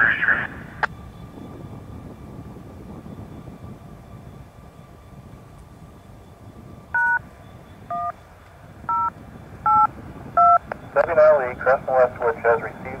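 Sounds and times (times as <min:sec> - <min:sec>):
touch-tone beeps over radio: 0:08.9 - 0:09.1, 0:09.7 - 0:12.8.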